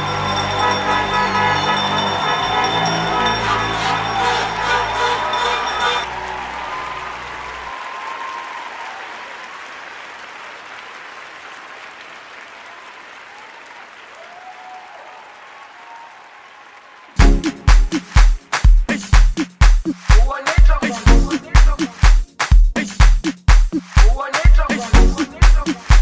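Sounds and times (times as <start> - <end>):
crowd applauding: 0.0 - 19.3.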